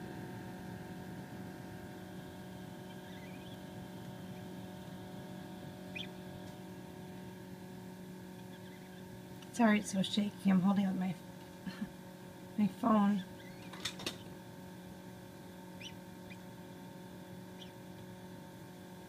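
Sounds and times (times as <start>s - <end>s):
incubator fan hum: 0.0s - 19.0s
gosling peeping: 2.8s - 3.6s, 5.9s - 6.2s, 8.4s - 9.1s, 15.8s - 16.6s, 17.5s - 17.8s.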